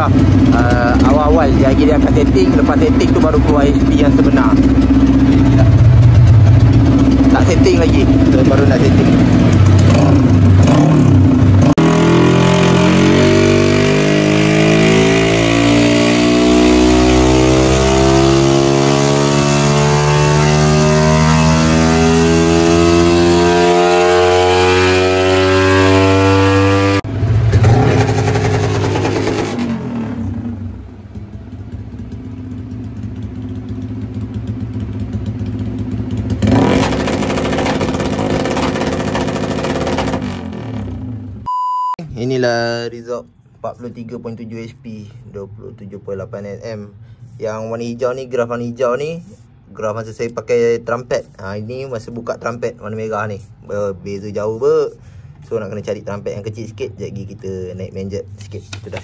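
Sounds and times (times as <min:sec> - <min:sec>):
motorcycle engine revving on dyno: 0:00.0 - 0:30.8, 0:31.5 - 0:41.5.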